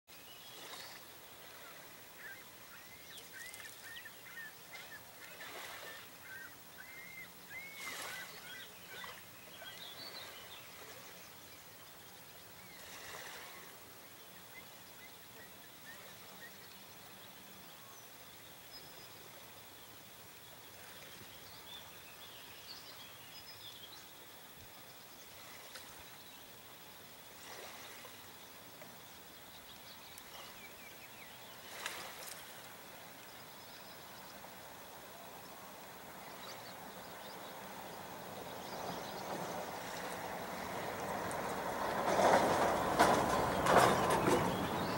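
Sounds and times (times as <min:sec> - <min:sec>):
small birds chirping: 0:00.4 - 0:12.9.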